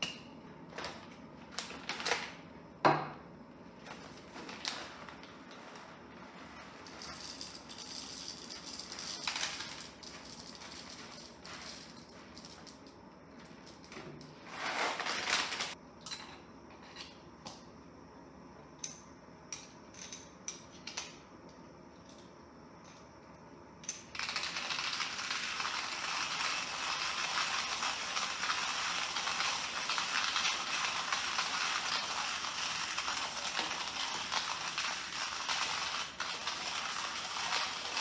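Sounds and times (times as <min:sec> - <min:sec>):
coffee beans rattling into grinder: 0:03.9 - 0:13.9, 0:24.0 - 0:38.0
hand grinder crunching beans: 0:24.2 - 0:38.0.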